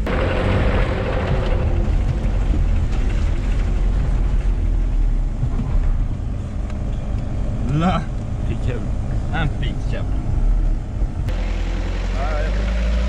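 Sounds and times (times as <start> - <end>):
sudden rush of noise: 0.0 - 6.6
engine rumbling under load: 0.0 - 13.0.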